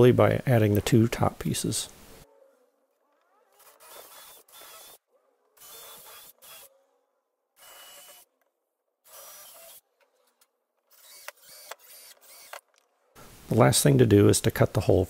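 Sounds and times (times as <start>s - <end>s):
cordless drill boring into wood: 3.2s - 6.7s, 7.6s - 8.3s, 9.0s - 9.9s, 10.9s - 12.8s.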